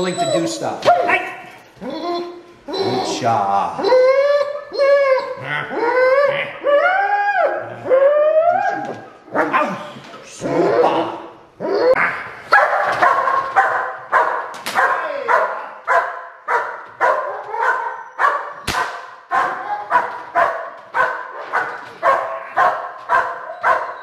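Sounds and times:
dog barking: 12.5s - 24.0s
sharp cracks: 14.5s - 15.1s, 18.6s - 19.3s.

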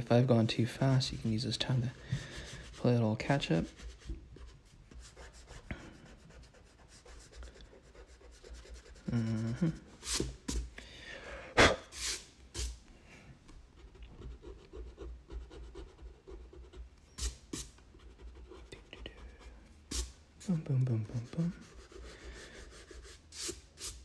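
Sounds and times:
pencil scratching on paper: 0.4s - 10.6s, 13.8s - 20.1s, 21.0s - 24.0s
person humming: 9.0s - 9.9s.

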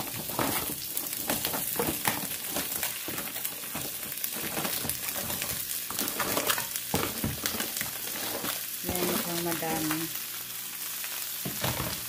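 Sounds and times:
spatula stirring: 0.0s - 9.6s
crab shells clattering in pan: 0.0s - 10.1s
vegetables sizzling in oil: 0.0s - 12.0s.

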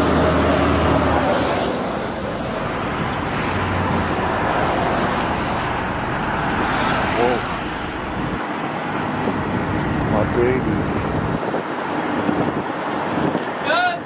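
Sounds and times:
diesel engine running: 0.0s - 12.6s
road noise: 0.0s - 14.0s.

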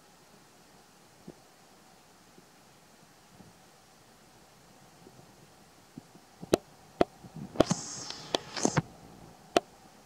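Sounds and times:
sharp clicks: 7.6s - 8.8s
short hissing rustle: 7.6s - 8.8s.

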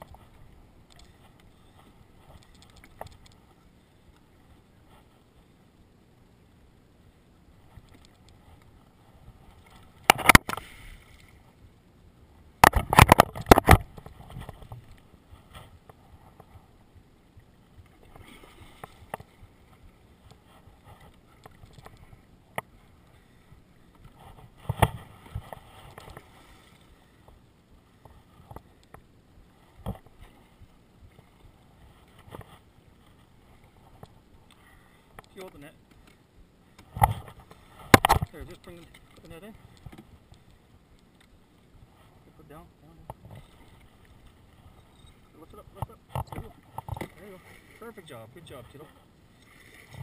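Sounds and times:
water lapping at boat: 0.0s - 50.0s
sharp splashes and knocks: 9.6s - 11.3s, 12.6s - 14.8s, 36.8s - 38.4s.

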